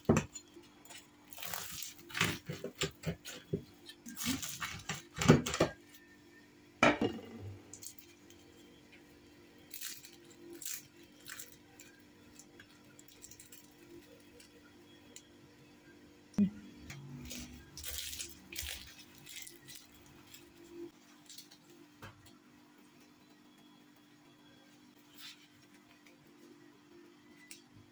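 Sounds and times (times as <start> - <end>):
flaky pastry crackling: 0.0 - 6.2, 7.7 - 15.2, 17.0 - 22.0.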